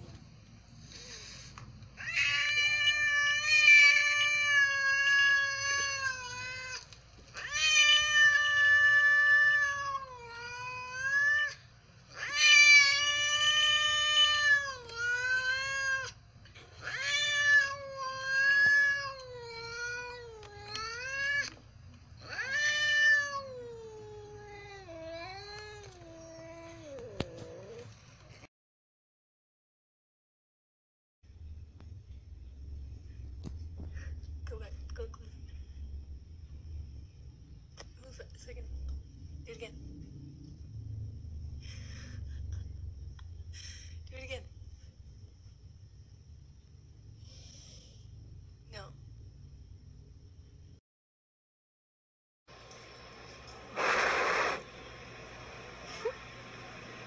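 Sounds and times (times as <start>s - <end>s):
cat yowling: 2.0s - 6.8s, 7.4s - 16.2s, 16.8s - 21.6s, 22.2s - 27.8s.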